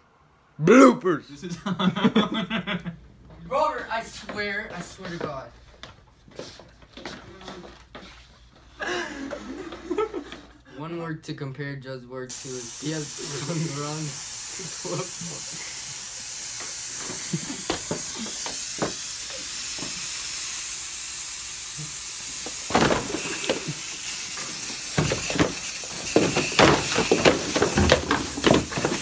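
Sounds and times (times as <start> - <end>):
aerosol can spraying: 12.3 - 29.0
cardboard clatter: 25.0 - 29.0
scuffling: 25.0 - 29.0.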